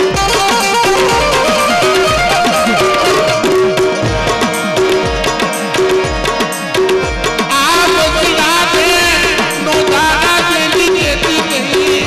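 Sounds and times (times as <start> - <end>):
drum strokes with sliding bass: 0.1 - 7.4
melody instrument holding notes: 0.7 - 6.7.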